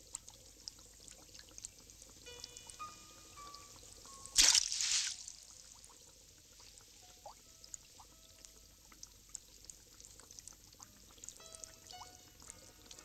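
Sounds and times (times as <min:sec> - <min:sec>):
faint water plinks: 0:00.0 - 0:13.0
fish splashing in water: 0:04.4 - 0:06.2.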